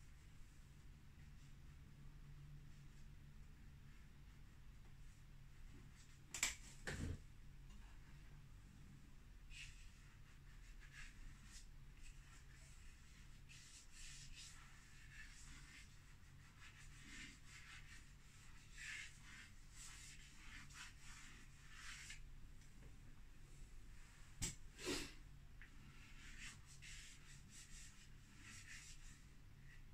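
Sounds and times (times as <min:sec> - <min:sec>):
chalk pastel scratching on board: 0:09.5 - 0:22.2, 0:25.9 - 0:29.4.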